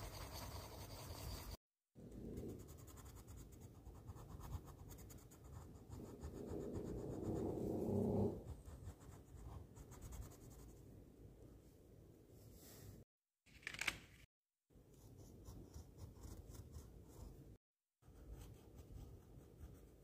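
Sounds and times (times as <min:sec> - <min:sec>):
pencil scratching on paper: 0:00.0 - 0:10.8, 0:14.9 - 0:20.0.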